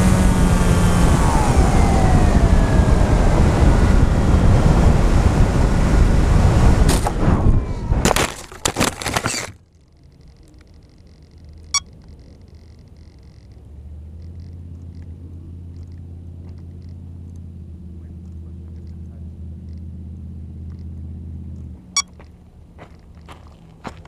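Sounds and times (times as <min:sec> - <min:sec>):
drone motors whining: 0:00.0 - 0:09.6
drone crashing on rocks: 0:06.8 - 0:09.6.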